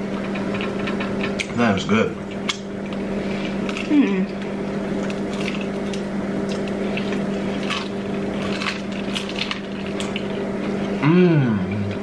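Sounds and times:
crunchy chewing: 0.0s - 1.6s, 2.2s - 11.0s.

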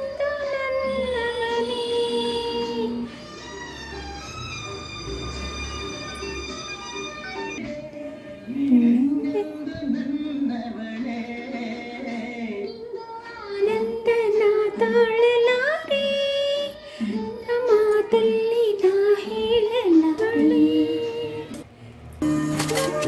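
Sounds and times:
high voice singing on television: 0.0s - 21.7s
instrumental accompaniment: 2.4s - 8.2s, 22.2s - 23.0s.

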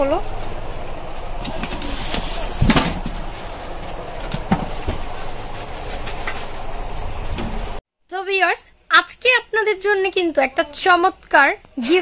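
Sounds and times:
steady background hum: 0.0s - 12.0s
bubble wrap crinkling: 1.8s - 7.8s.

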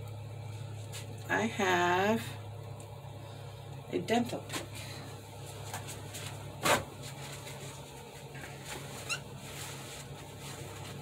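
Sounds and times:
steady low hum: 0.0s - 11.0s
rising squeak: 9.0s - 9.3s.

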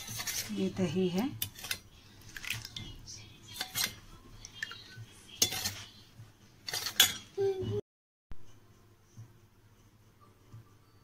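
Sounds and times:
metal spoon clinking in steel bowl: 5.4s - 5.8s, 6.7s - 7.3s.

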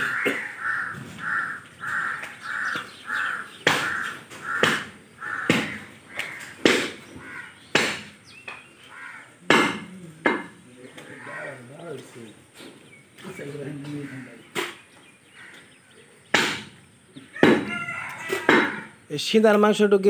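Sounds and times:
crow cawing: 0.0s - 12.2s, 13.7s - 19.0s
sharp knocks: 3.6s - 8.6s, 9.4s - 10.6s, 16.3s - 16.8s, 17.4s - 17.8s, 18.4s - 18.9s.

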